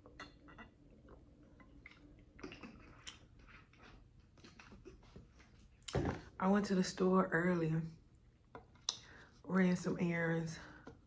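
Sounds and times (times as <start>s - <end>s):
person gulping from bottle: 1.8s - 3.4s.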